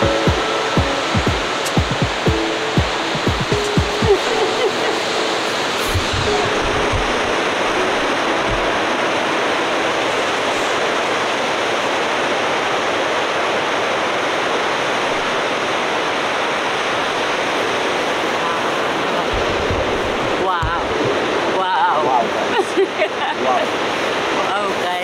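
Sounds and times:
surf breaking on rocks: 0.0 - 12.9.

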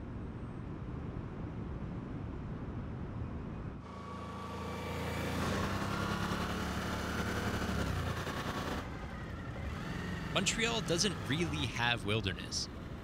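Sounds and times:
motorcycle engine passing by: 3.9 - 11.7.

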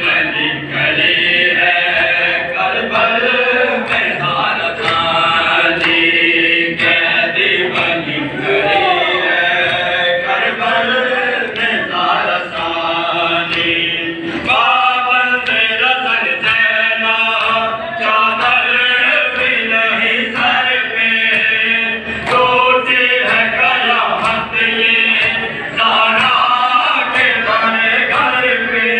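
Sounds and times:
men chanting a lament: 0.0 - 28.9.

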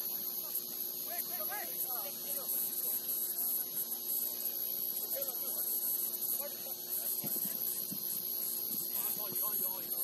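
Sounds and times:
electrical hum: 0.0 - 10.0
high-pitched hiss: 0.0 - 10.0.

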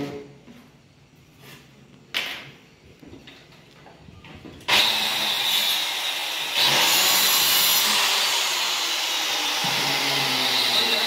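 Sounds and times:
electric cutter cutting wood: 4.7 - 11.0.

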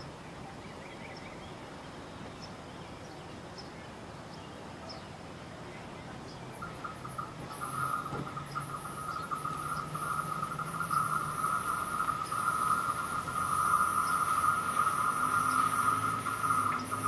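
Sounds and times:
insects chirring: 6.5 - 17.0.

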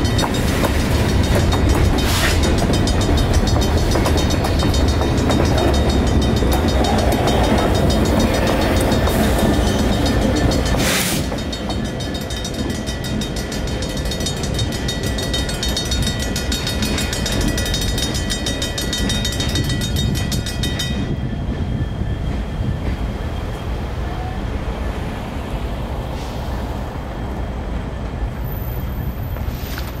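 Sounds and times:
crossing bells ringing rapidly: 0.0 - 21.8
freight train rumbling: 0.0 - 30.0.

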